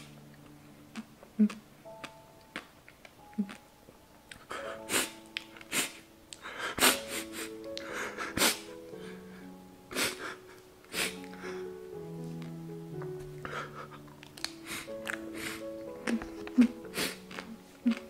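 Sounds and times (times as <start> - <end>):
soft background music: 0.0 - 18.0
man sniffling and sobbing: 4.5 - 11.7, 13.4 - 14.0, 14.6 - 17.3.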